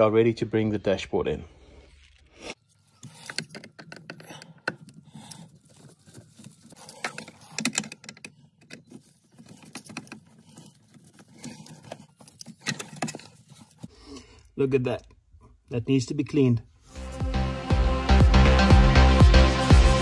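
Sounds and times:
screwdriver clicking on plastic: 6.8 - 13.3.

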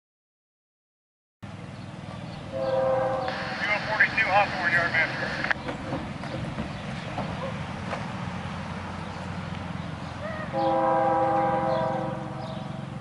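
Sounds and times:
locomotive air horn chord: 2.5 - 5.4, 10.5 - 12.9.

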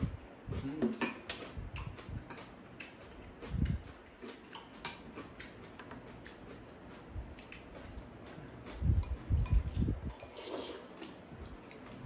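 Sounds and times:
chopsticks and spoons clicking bowls: 0.9 - 3.4, 4.2 - 7.8.

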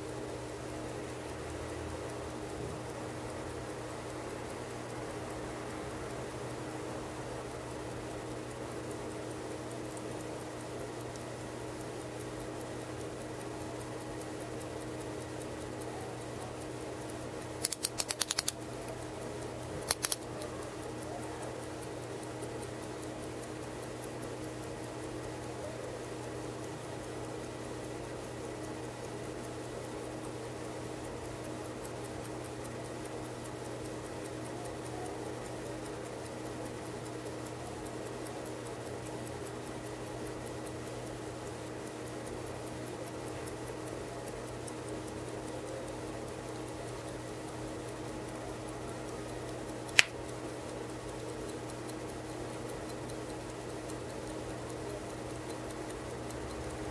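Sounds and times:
pocket watch ticking: 0.0 - 56.9
sharp metal clicks: 8.3 - 21.0, 21.6 - 56.9.

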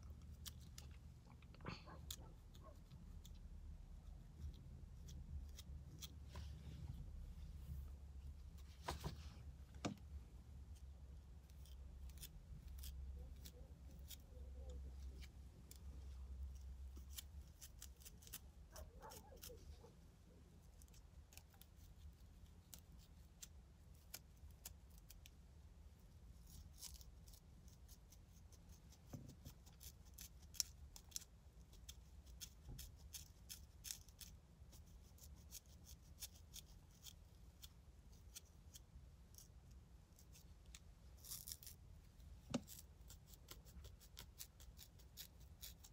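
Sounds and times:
comb scratching scalp: 10.8 - 19.9, 26.4 - 45.9.

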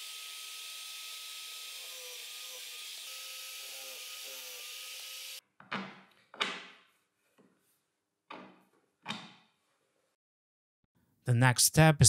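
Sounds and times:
column drill running: 0.0 - 5.4
wooden knocks and clunks: 5.6 - 7.5, 8.3 - 9.5.

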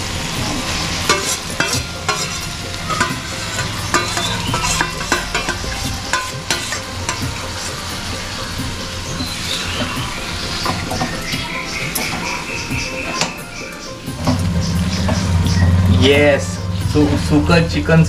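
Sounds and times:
food sizzling in oil: 0.0 - 17.7
spatula scraping a pan: 0.2 - 13.4.

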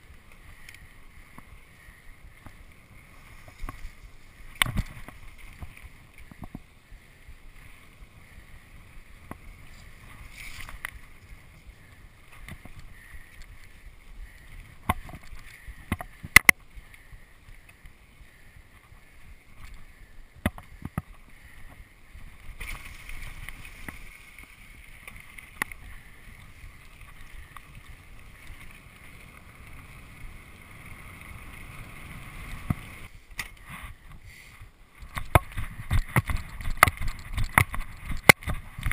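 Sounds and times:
bike rattling over bumps: 0.0 - 34.2, 35.0 - 38.9
bike tyres rumbling on dirt: 0.0 - 38.9.

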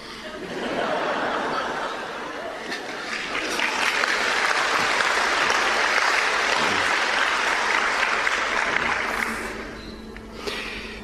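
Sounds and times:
audience applauding: 2.6 - 9.8.

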